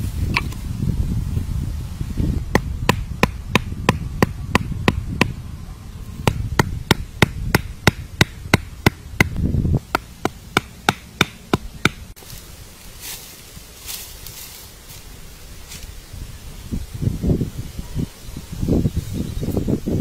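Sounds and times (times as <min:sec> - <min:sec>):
wooden stakes pounded into ground: 0:02.5 - 0:05.4, 0:06.2 - 0:12.4.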